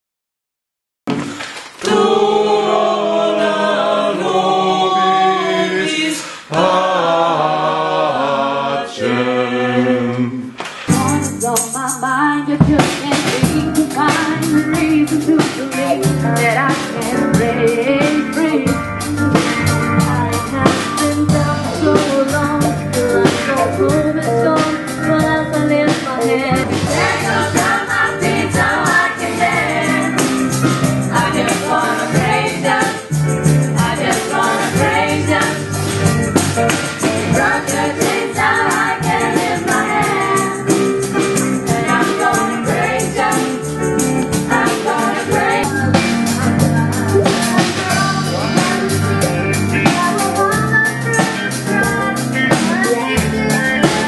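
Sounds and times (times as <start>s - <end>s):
women singing together: 1.8s - 10.4s, 23.3s - 30.4s, 31.0s - 33.1s, 33.8s - 35.8s, 37.1s - 40.8s, 41.6s - 43.7s, 44.4s - 46.1s, 51.2s - 54.0s
band with driving beat: 10.6s - 54.0s.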